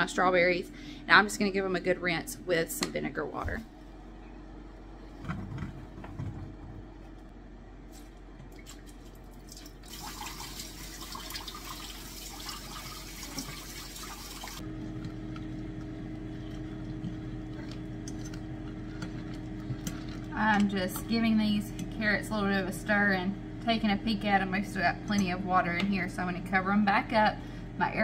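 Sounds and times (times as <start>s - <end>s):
air fryer humming: 0.0s - 28.0s
tap running water: 8.5s - 15.4s.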